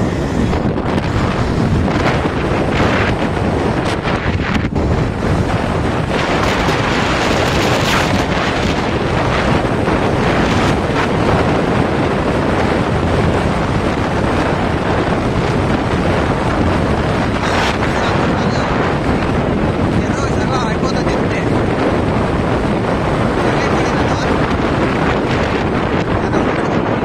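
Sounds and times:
wind buffeting microphone: 0:00.0 - 0:27.0.

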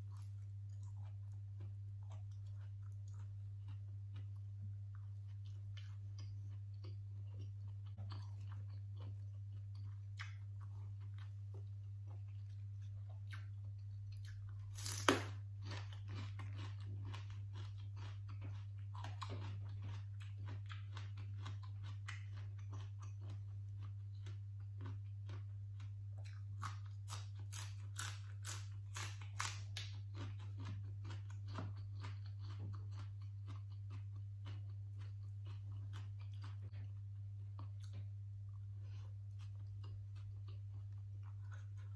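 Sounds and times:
steady low hum: 0:00.0 - 0:41.9
crunching raw vegetables: 0:13.3 - 0:36.9.

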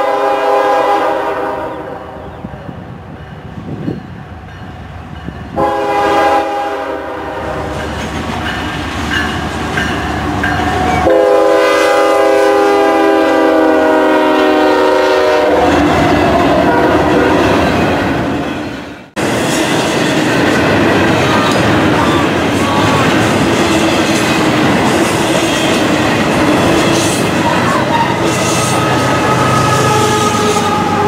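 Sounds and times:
locomotive air horn: 0:00.0 - 0:02.3, 0:05.6 - 0:07.8, 0:10.8 - 0:17.6, 0:26.9 - 0:31.0
train cars rumbling and clattering: 0:00.0 - 0:31.0.

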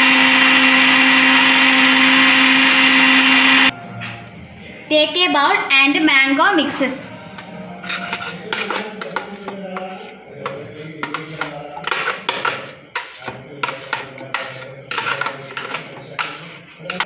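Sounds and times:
scraping on counter: 0:07.4 - 0:17.0.

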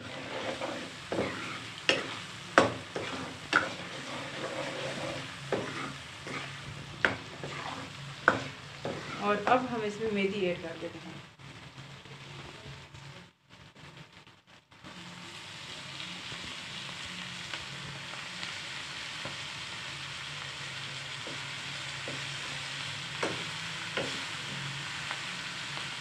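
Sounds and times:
vegetables sizzling in a wok: 0:00.0 - 0:26.0
metal spoon knocking a wok: 0:01.1 - 0:03.9, 0:08.3 - 0:09.2, 0:23.2 - 0:24.2.

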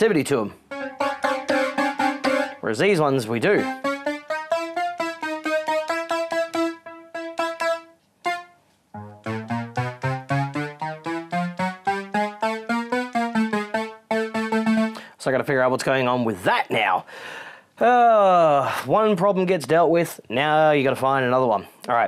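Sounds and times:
synthesizer short notes: 0:00.7 - 0:15.1.

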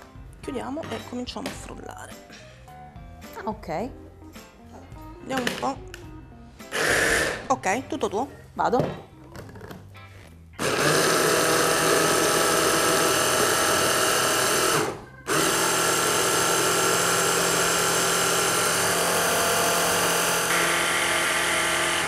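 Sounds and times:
hand blender motor whining: 0:06.7 - 0:07.4, 0:10.6 - 0:22.0.

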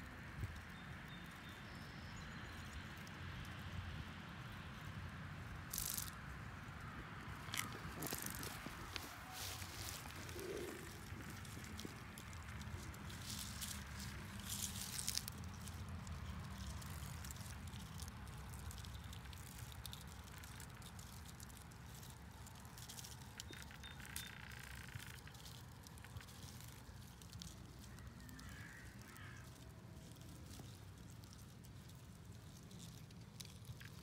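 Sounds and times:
wind rumble on microphone: 0:03.5 - 0:17.6
light clicks and rustles: 0:07.3 - 0:34.0
bird calling: 0:07.5 - 0:13.8.

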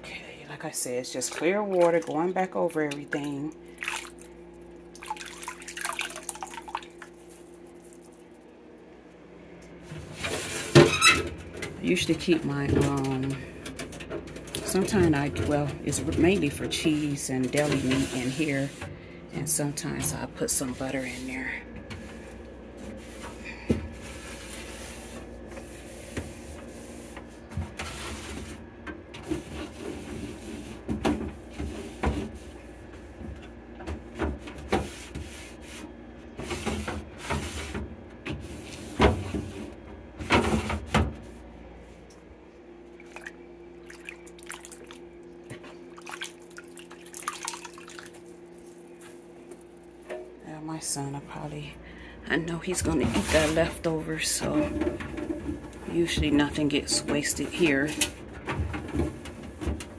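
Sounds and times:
steady low hum: 0:00.0 - 0:59.9
cloth wiping plastic: 0:06.5 - 0:08.5, 0:20.2 - 0:28.6
tap water splashing in sink: 0:46.0 - 0:48.2.

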